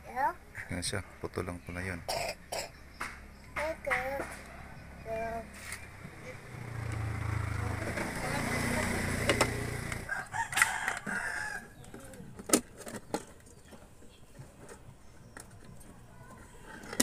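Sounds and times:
rooster crowing: 10.0s - 11.8s.

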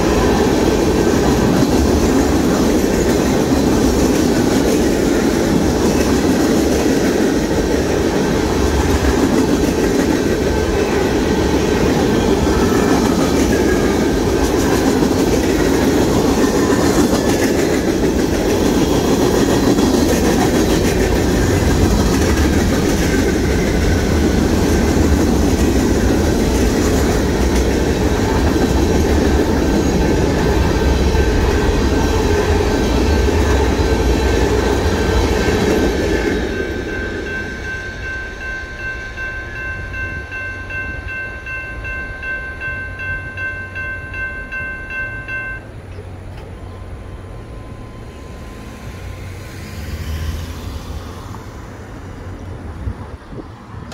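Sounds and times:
train wheels clacking on rails: 0.0s - 46.6s
crossing signal bell ringing: 36.1s - 46.0s.

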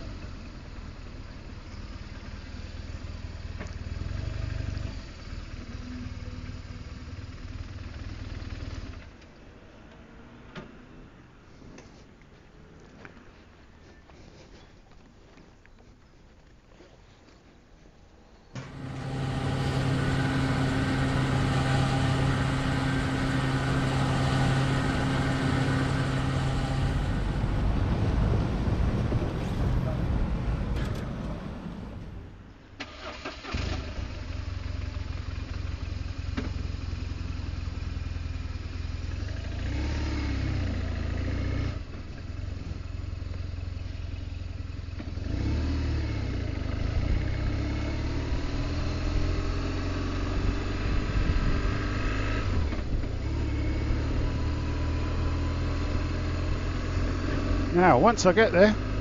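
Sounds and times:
motorcycle engine starting and idling: 0.0s - 10.1s, 18.5s - 39.8s, 40.4s - 59.0s
petrol pump humming: 18.6s - 28.3s.

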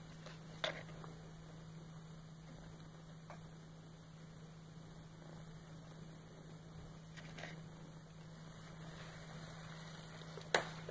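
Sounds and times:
faint hiss: 0.0s - 10.9s
low electrical hum: 0.0s - 10.9s.

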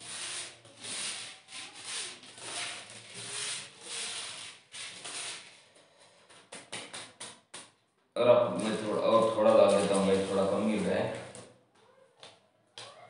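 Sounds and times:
fingers rubbing dry powder on paper: 0.0s - 5.6s, 8.6s - 10.9s.

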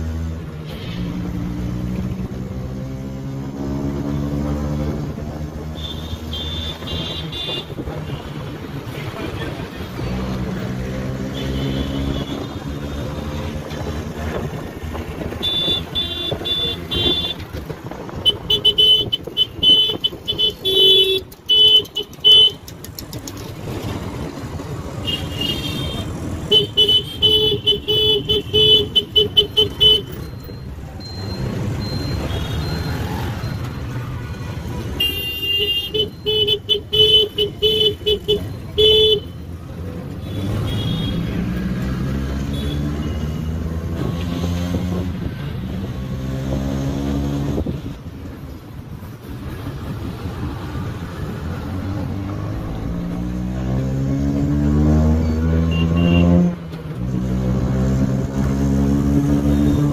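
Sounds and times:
street traffic: 0.0s - 59.9s
high-pitched horn toots: 55.6s - 56.5s.

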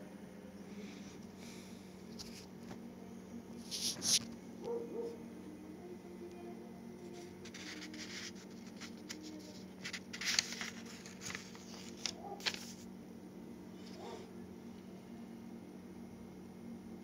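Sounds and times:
faint low hum: 0.0s - 17.0s
scratchy handling rustles: 3.6s - 4.3s, 7.1s - 12.9s.

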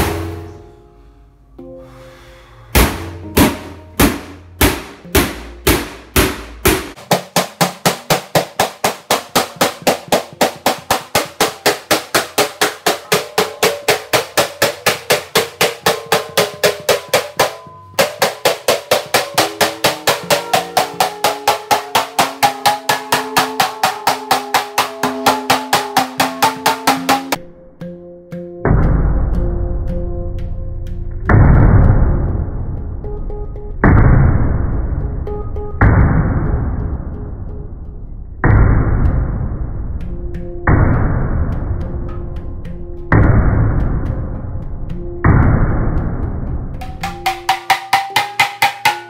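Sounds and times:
wooden mallet hammering steel sheet: 0.0s - 0.7s, 2.7s - 27.4s, 46.8s - 49.0s.

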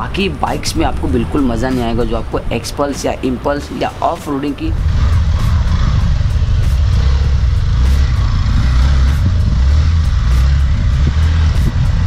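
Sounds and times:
wind rumble on microphone: 4.6s - 12.0s
motorcycle engine running: 4.7s - 12.0s.

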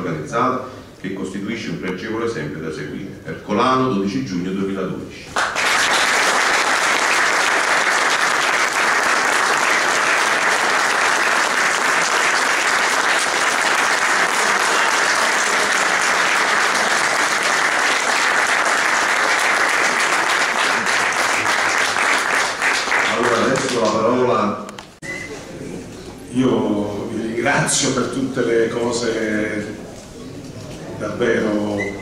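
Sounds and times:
crowd applauding: 5.4s - 24.1s.

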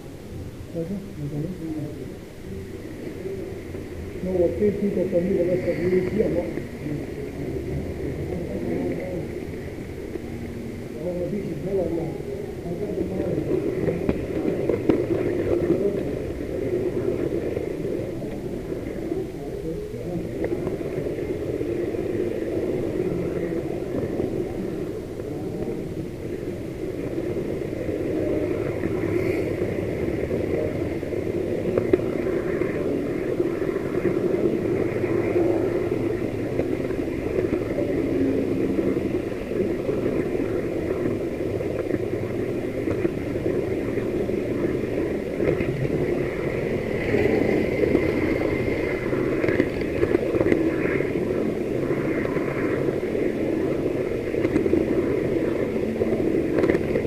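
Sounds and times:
scattered clicks: 54.0s - 57.0s.

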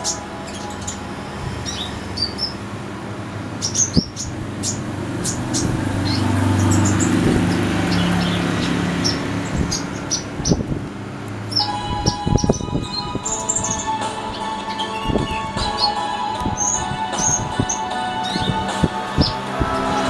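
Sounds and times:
sunbird chirping: 0.0s - 2.7s, 3.5s - 10.6s, 11.4s - 20.0s
low rumble: 19.2s - 20.0s.

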